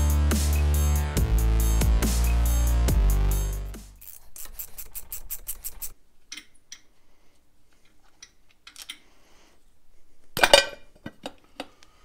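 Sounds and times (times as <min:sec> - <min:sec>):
metal parts clinking: 0:04.0 - 0:06.9, 0:08.2 - 0:09.1.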